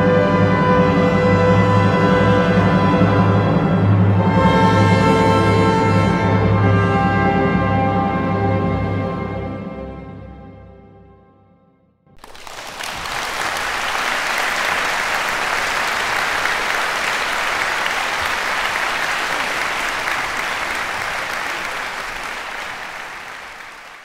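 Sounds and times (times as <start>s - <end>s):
music: 0.0s - 12.2s
audience applauding: 12.2s - 24.0s.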